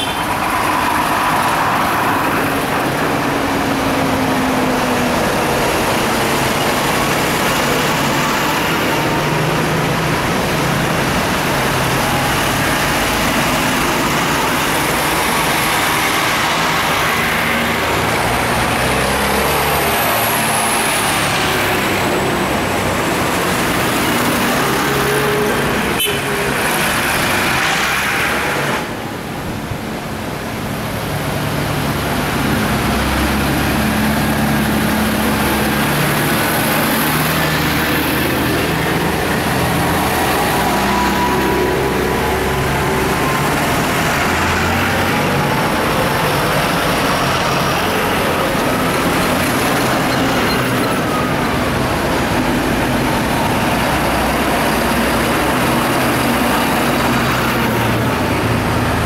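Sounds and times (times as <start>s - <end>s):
tractors driving past: 0.0s - 59.0s.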